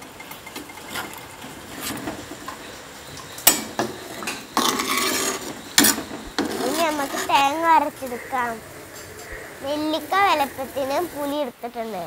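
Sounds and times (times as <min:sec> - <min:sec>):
metal spatula scraping clay pot: 0:04.0 - 0:07.6.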